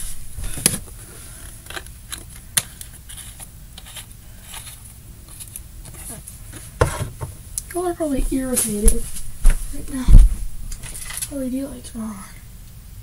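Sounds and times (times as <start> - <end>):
items clicking and rustling: 10.2 - 11.3.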